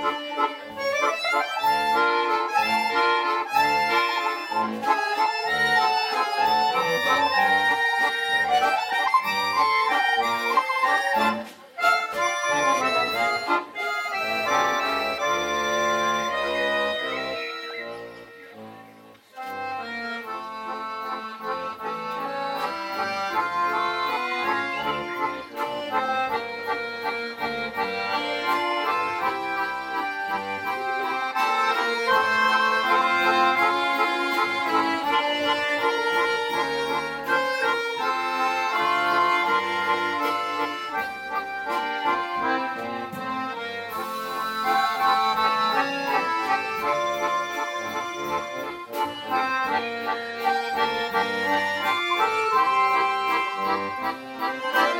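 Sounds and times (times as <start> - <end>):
accordion orchestra playing: 0.0 - 54.9.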